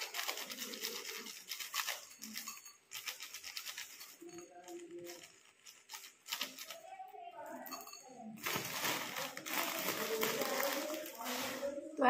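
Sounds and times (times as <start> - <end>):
plastic snack packet crinkling: 0.0 - 6.9, 8.4 - 12.0.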